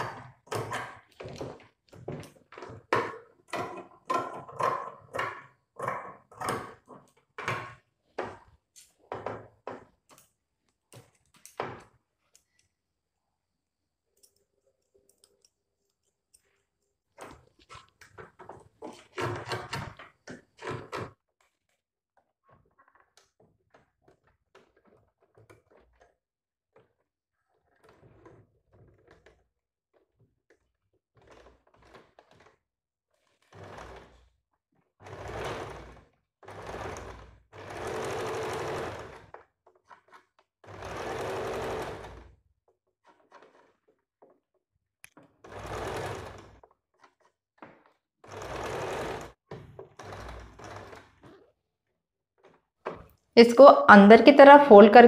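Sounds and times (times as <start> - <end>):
sewing machine stitching: 0.0 - 10.3, 16.4 - 21.2, 22.5 - 51.7.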